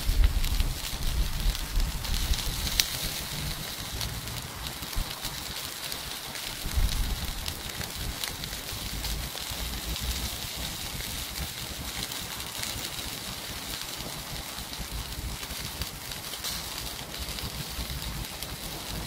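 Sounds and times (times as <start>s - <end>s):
low rumble: 0.0s - 5.5s, 6.5s - 11.6s
meat sizzling on a charcoal grill: 0.0s - 19.0s.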